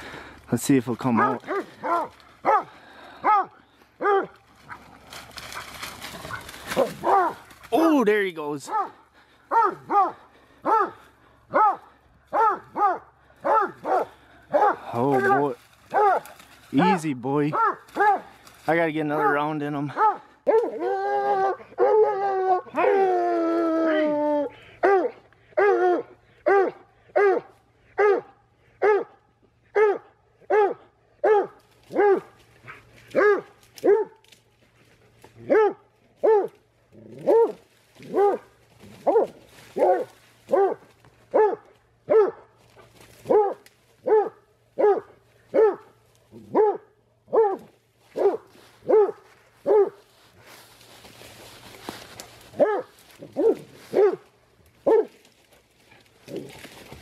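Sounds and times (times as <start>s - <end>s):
brush rustling: 0.0s - 20.8s, 31.6s - 57.0s
dog barking: 1.1s - 4.8s, 6.3s - 7.4s, 8.7s - 16.4s, 17.5s - 18.3s, 19.2s - 20.8s, 24.8s - 34.2s, 35.4s - 36.6s, 37.2s - 42.5s, 43.3s - 50.0s, 52.6s - 54.2s, 54.8s - 55.2s.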